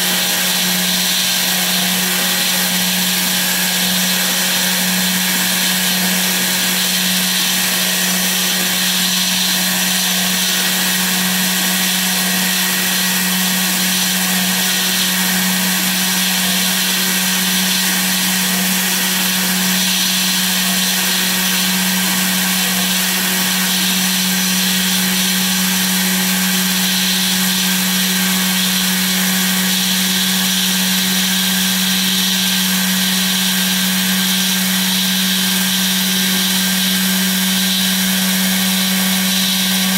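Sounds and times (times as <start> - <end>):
router spindle humming: 0.0 - 39.9.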